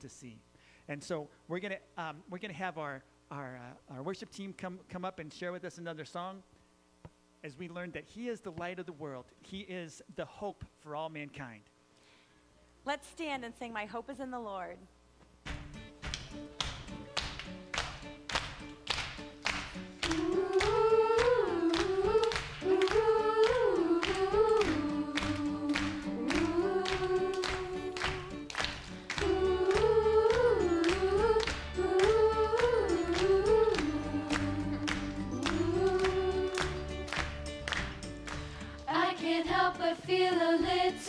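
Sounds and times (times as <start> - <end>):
live worship band playing: 18.0 - 38.8.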